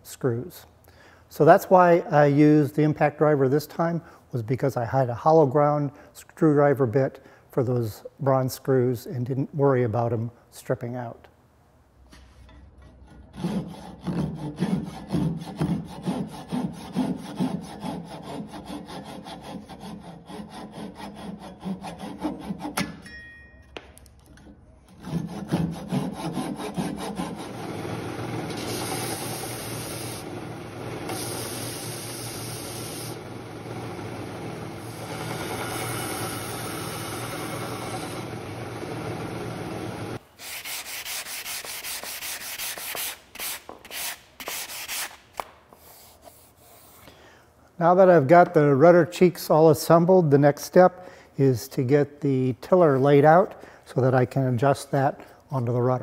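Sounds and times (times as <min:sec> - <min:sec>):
hand saw cutting wood: 0:12.9 - 0:22.9, 0:24.9 - 0:30.3
electric belt sander running: 0:27.2 - 0:40.2.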